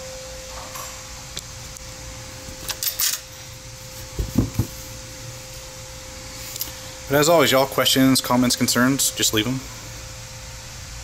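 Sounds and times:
steady hum: 0:00.0 - 0:11.0
dull knocks: 0:04.2 - 0:04.8.

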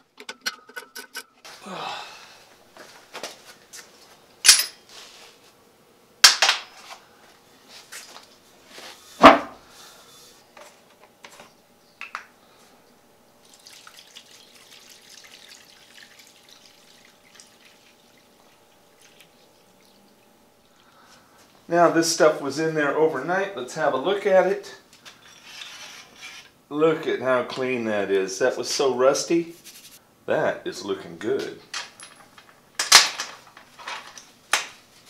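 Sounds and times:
sharp metal clanks: 0:04.4 - 0:04.8
liquid pouring into steel tray: 0:13.4 - 0:21.0.

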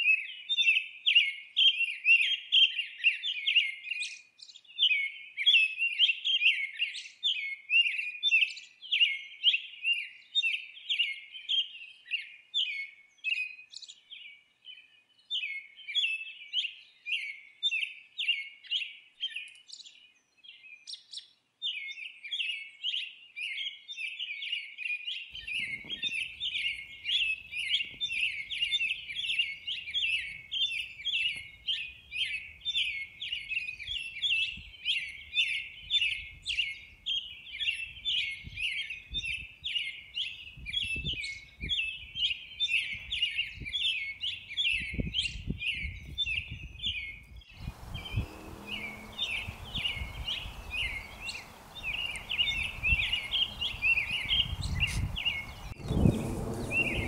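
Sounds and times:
small birds chirping: 0:19.3 - 0:57.0
faint low rumble: 0:55.2 - 0:57.0.

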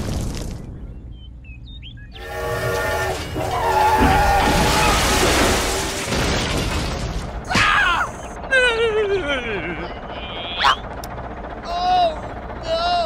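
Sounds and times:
train horn chord: 0:02.2 - 0:03.8
crashing and shattering: 0:03.1 - 0:07.8.

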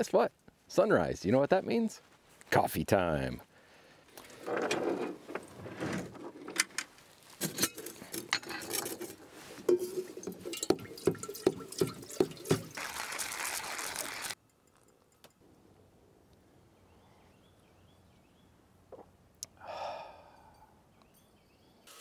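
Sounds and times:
metal kettle clinks and taps: 0:07.4 - 0:12.8
rushing liquid: 0:09.6 - 0:14.4.

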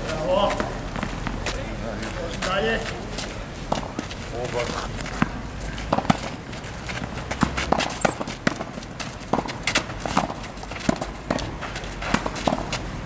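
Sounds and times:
tennis balls bouncing on court: 0:00.0 - 0:13.0
tennis balls struck with rackets: 0:00.1 - 0:12.9.

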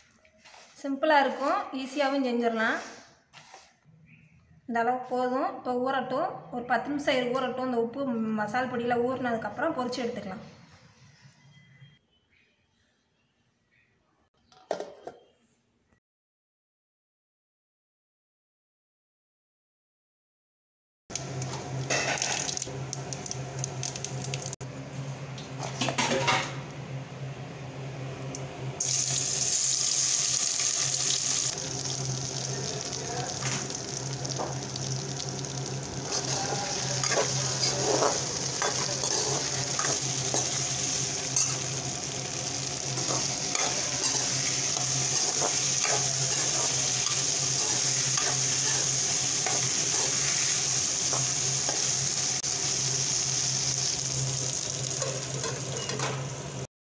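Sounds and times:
oil sizzling in a pan: 0:21.1 - 0:24.6, 0:28.8 - 0:56.7
stirring clicks and scrapes in pan: 0:36.1 - 0:40.6.

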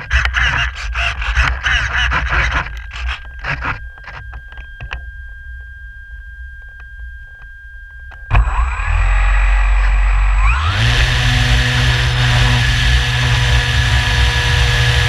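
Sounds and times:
electric motor and propeller whining: 0:08.3 - 0:15.0.

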